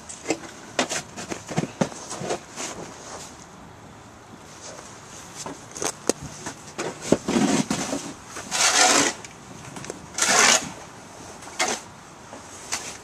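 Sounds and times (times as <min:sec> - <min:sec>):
snow crunching and scraping: 0:07.0 - 0:09.2.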